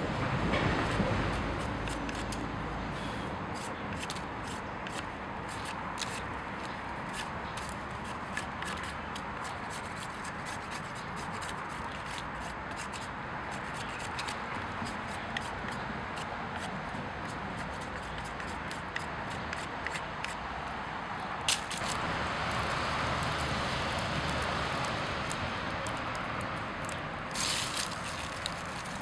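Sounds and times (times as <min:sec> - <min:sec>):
knife scraping bark: 0:00.9 - 0:20.4, 0:26.9 - 0:29.0.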